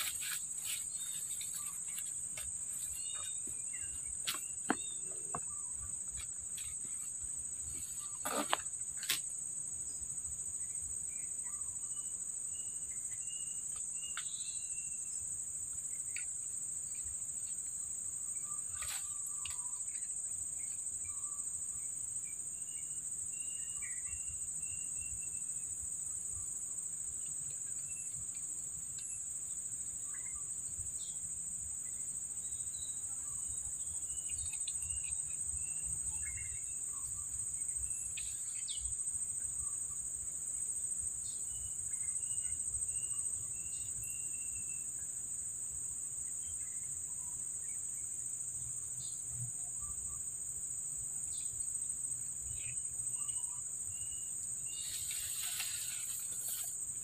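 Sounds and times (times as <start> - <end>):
high-pitched insect drone: 52.6 - 57.0.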